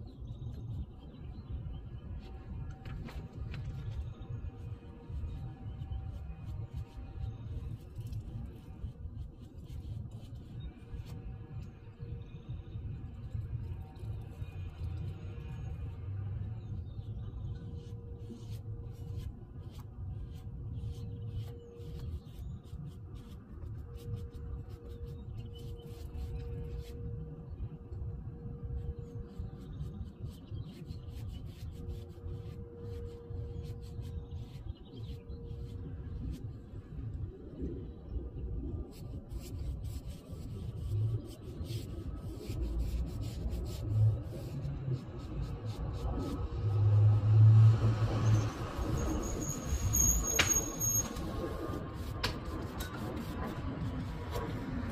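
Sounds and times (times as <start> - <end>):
low steady rumble: 0.0 - 50.2
scratchy brush strokes: 3.0 - 37.1, 38.7 - 54.9
scratchy rubbing on wooden door: 39.2 - 47.2.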